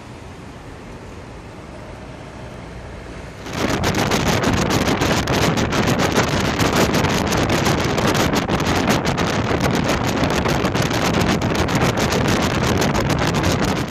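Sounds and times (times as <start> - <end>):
wind buffeting microphone: 3.3 - 13.9.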